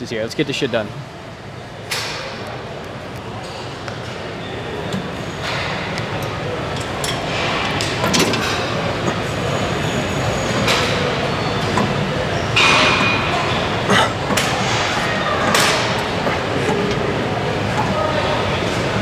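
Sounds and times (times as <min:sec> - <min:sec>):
steady background hum: 0:00.0 - 0:19.0
gym weights clanking: 0:04.8 - 0:19.0.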